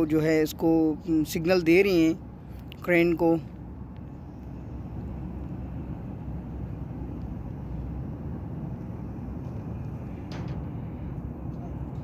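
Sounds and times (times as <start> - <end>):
diesel engine rumbling: 0.0 - 12.0.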